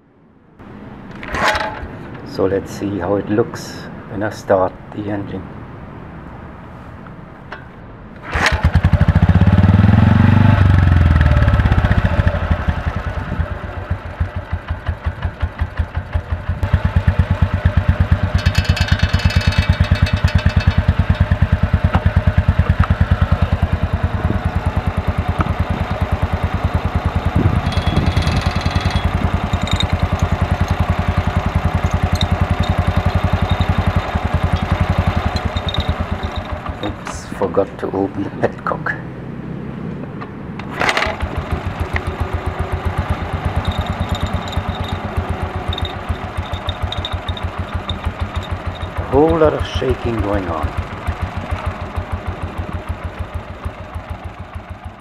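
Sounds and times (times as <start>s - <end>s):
motorcycle engine starting and idling: 0.6s - 2.6s, 7.4s - 55.0s.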